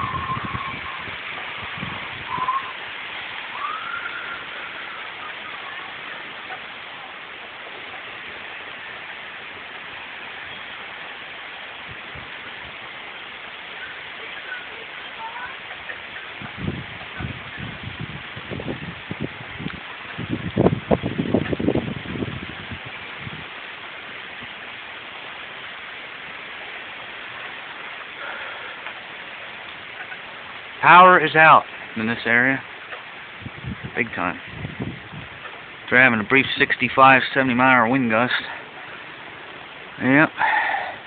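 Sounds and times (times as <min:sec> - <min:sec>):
wind thumps on microphone: 0:00.0 - 0:02.8, 0:11.8 - 0:12.8, 0:16.2 - 0:24.6, 0:32.9 - 0:35.9
rain: 0:00.0 - 0:41.0
strong wind: 0:00.0 - 0:41.0
thunderstorm hiss: 0:00.0 - 0:41.0.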